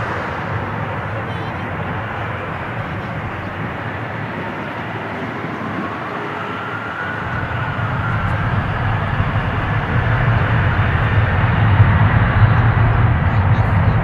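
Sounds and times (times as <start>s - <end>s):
jet engines rumbling and whining: 0.0s - 14.0s.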